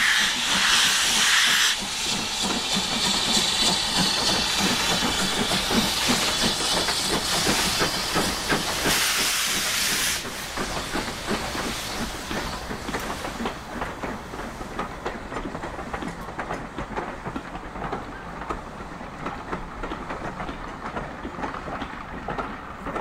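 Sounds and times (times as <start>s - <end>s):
steam hissing: 0.0s - 14.8s
train wheels knocking on rail joints: 0.0s - 23.0s.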